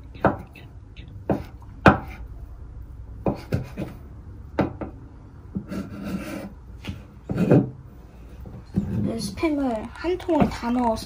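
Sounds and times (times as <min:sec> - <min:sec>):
knife scraping cutting board: 0:05.6 - 0:06.6.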